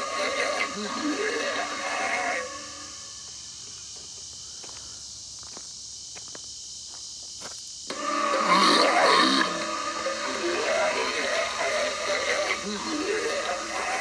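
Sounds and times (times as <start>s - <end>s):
crickets chirping: 0.0s - 14.0s
loud recorded voice and effects: 8.0s - 14.0s.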